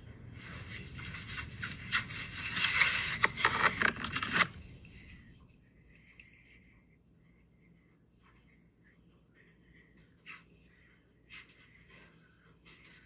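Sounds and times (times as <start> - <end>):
rustling handling noise: 0.3 - 6.4.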